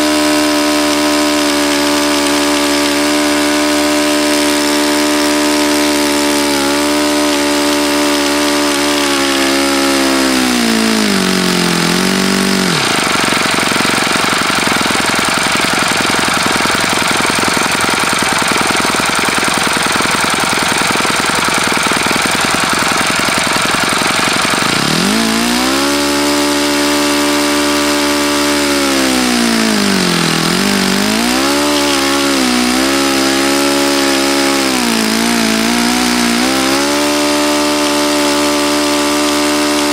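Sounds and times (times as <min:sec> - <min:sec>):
model engine turning a propeller: 0:00.0 - 0:39.9.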